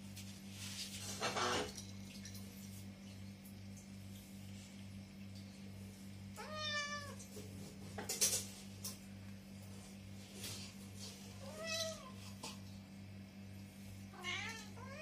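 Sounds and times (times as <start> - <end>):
steady low hum: 0.0 - 15.0
cat meowing: 6.4 - 7.2, 11.4 - 12.2, 14.2 - 15.0.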